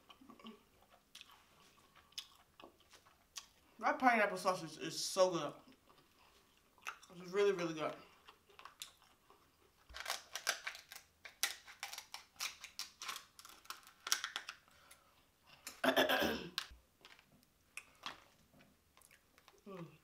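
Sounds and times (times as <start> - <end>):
wet mouth clicks and smacks chewing: 0.1 - 3.6, 5.7 - 7.1, 8.2 - 9.4.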